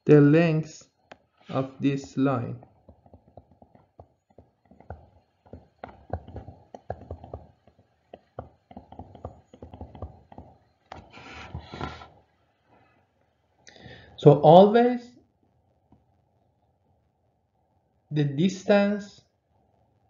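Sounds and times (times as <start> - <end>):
stylus tapping on tablet screen: 2.6 - 11.8.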